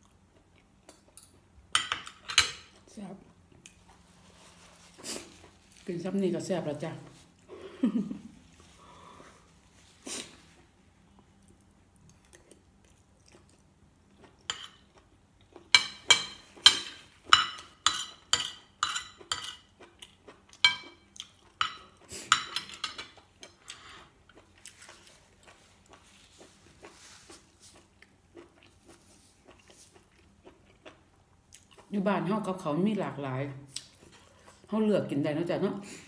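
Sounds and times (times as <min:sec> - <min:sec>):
cutlery scraping and clinking on plate: 0:00.9 - 0:02.8, 0:15.8 - 0:19.7, 0:21.6 - 0:24.1.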